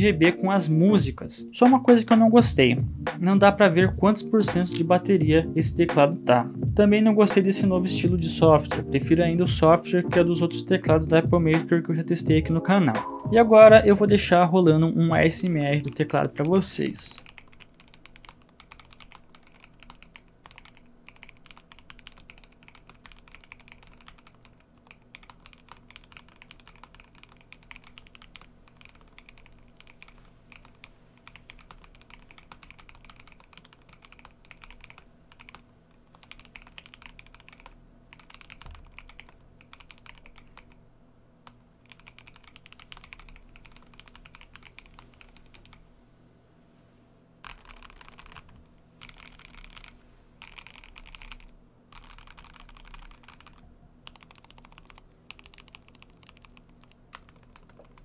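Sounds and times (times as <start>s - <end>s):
mechanical keyboard typing: 15.8s - 40.8s, 41.4s - 45.8s, 47.4s - 58.0s.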